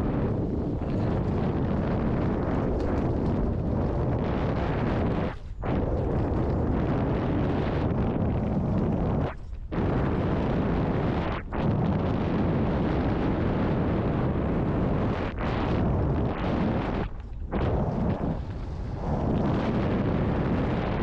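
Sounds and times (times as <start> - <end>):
wind buffeting microphone: 0.0 - 21.0.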